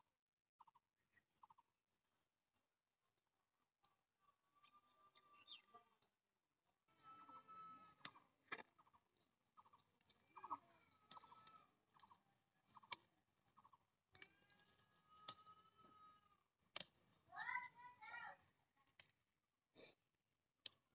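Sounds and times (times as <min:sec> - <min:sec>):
chickens clucking: 0:07.1 - 0:16.1.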